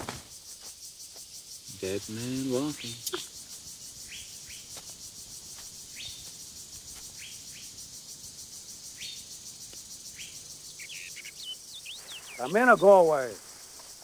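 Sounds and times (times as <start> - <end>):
pulsing insect chorus: 0.0 - 14.0
short rising bird chirps: 10.1 - 12.8.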